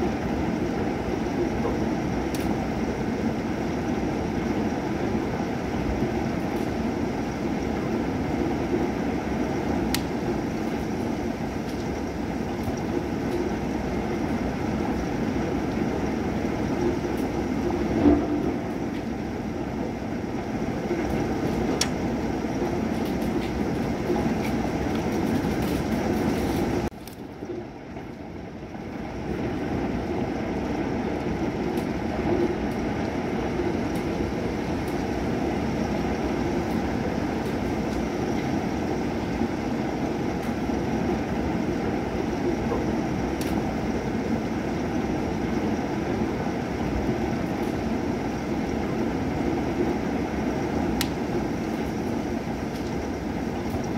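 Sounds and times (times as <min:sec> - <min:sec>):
steady rain: 0:00.0 - 0:53.9
raindrop clicks: 0:11.6 - 0:12.0, 0:21.0 - 0:22.0, 0:22.9 - 0:28.2, 0:43.4 - 0:43.6, 0:51.0 - 0:52.1.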